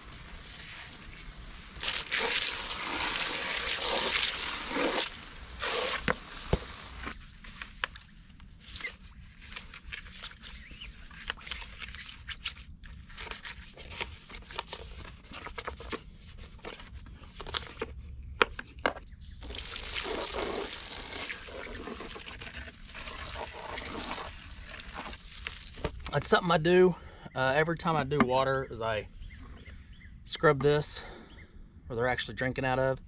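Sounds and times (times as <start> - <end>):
brush scrubbing plastic: 0.0 - 7.2, 19.4 - 25.9
garden hose spraying water: 0.0 - 7.2, 19.4 - 26.0.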